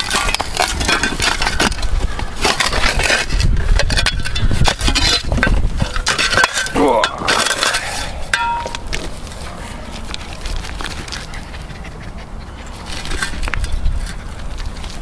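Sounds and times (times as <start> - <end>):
dogs panting and snuffling: 8.7 - 15.0.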